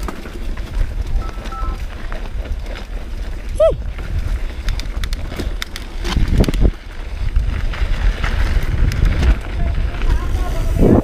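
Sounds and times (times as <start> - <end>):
bike clicks and rattles: 0.0 - 11.0
wind buffeting microphone: 0.0 - 11.0.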